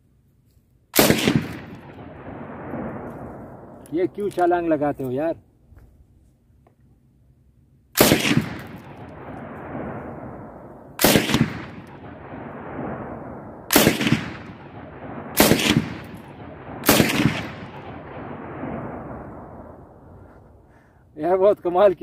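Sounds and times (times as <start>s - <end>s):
rolling gunshot echo: 1.0s - 3.2s, 8.0s - 19.4s.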